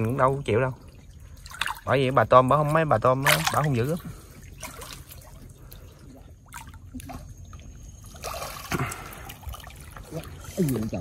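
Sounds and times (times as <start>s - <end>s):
creek water trickling: 0.0s - 11.0s
water splash: 1.2s - 5.8s, 8.0s - 11.0s.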